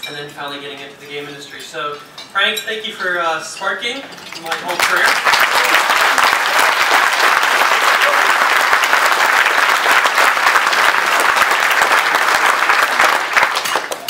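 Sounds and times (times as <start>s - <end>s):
audience applauding: 4.5s - 14.0s.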